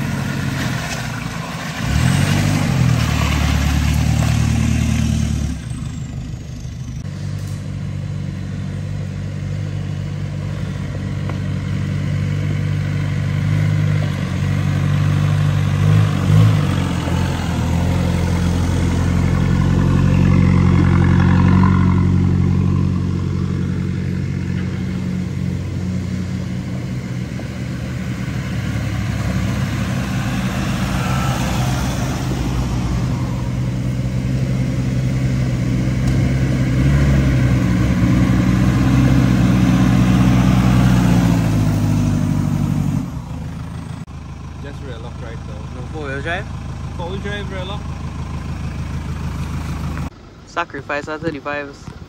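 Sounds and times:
tyres rolling over dirt and leaves: 0.0s - 6.1s
truck engines at low revs: 0.0s - 52.0s.

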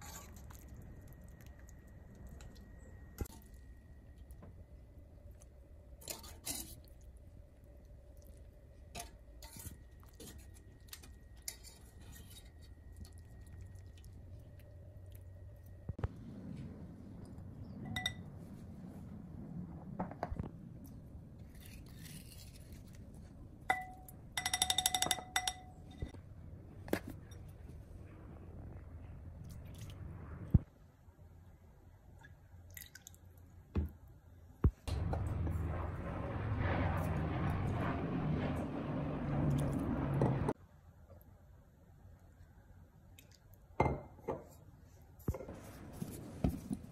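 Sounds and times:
low steady hum: 0.0s - 46.9s
wire strainer scraping a steel wok: 6.0s - 6.8s.

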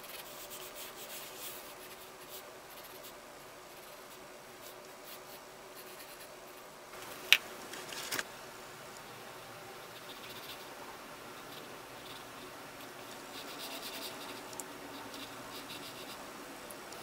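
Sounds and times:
pencil scratching on paper: 0.0s - 6.6s, 11.4s - 16.2s.

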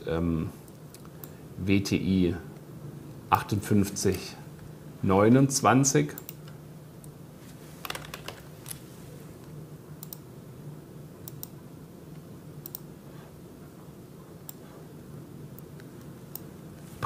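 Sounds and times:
low room hum: 0.0s - 17.0s
typing on computer keyboard: 7.8s - 8.4s.

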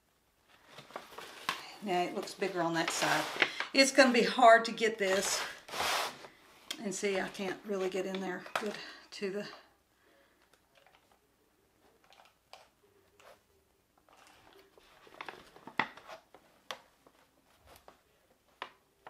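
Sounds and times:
paper rustling: 0.5s - 4.0s, 5.0s - 6.4s, 14.0s - 18.8s.

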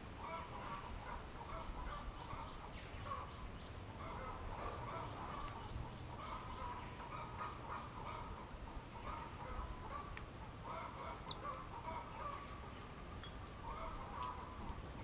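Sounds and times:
tit chattering calls: 11.2s - 11.5s.

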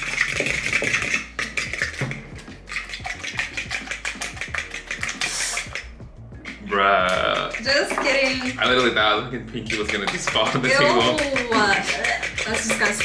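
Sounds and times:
eggs beaten in plastic bowl: 0.0s - 13.0s.

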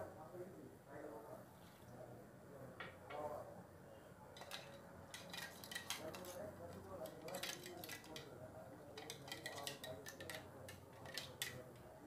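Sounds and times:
metal jar clinking against pot: 4.4s - 6.4s, 7.2s - 8.2s, 9.0s - 11.6s.

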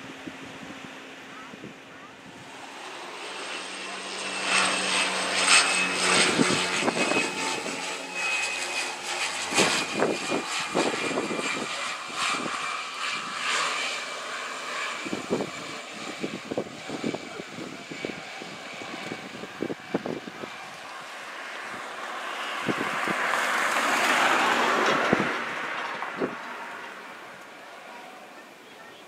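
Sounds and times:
turboprop engines whining: 0.0s - 29.0s.

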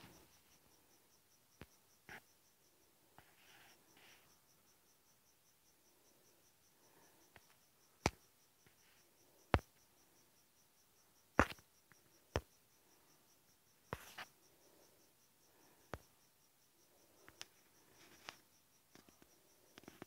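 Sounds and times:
cricket chirping: 0.0s - 20.0s.

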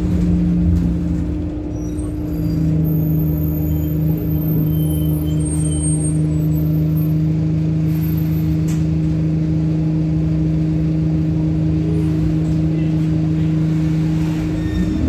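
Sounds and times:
bus engine droning: 0.0s - 15.0s.

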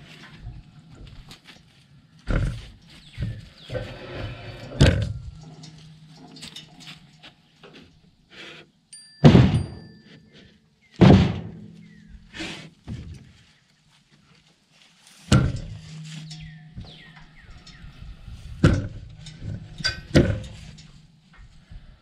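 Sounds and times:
timber scraping on wood: 2.3s - 8.7s
heavy wooden thuds and knocks: 4.8s - 5.4s, 9.2s - 9.9s, 11.0s - 12.3s, 15.3s - 15.8s, 18.6s - 20.6s.

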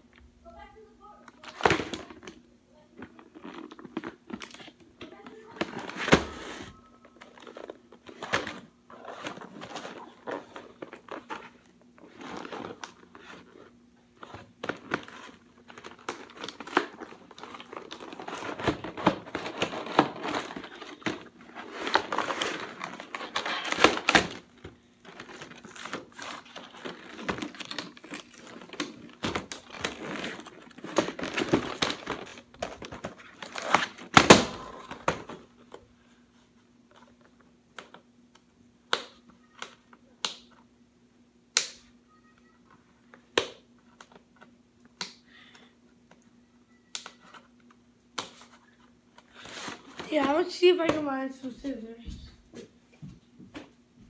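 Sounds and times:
faint steady hum: 0.0s - 54.0s
packaging crinkling and tearing: 3.0s - 35.4s.

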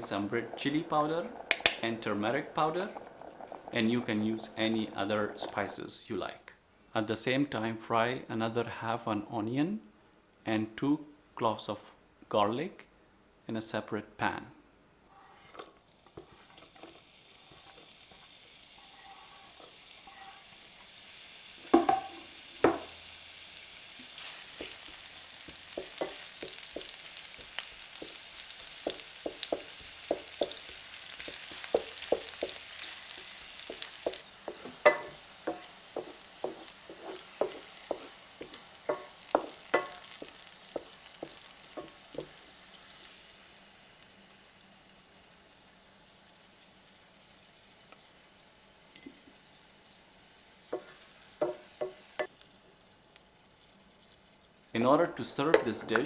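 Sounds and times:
onion and garlic frying in oil: 0.0s - 5.8s, 15.2s - 54.8s
wooden spoon knocking against pan: 21.7s - 22.9s, 24.6s - 27.1s, 28.8s - 42.4s, 50.7s - 52.3s.

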